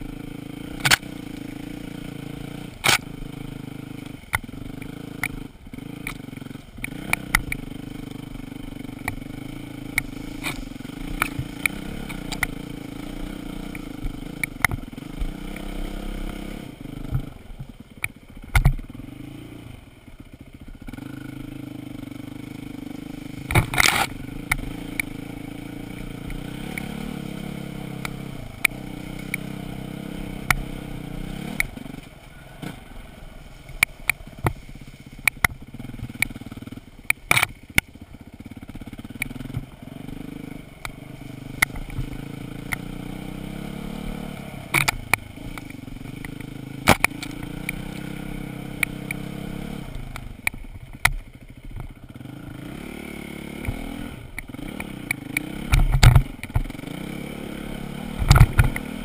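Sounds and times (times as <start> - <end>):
dirt bike engine low revs: 0.0 - 59.0
knocks and clatter from riding: 55.6 - 56.8, 58.2 - 58.9.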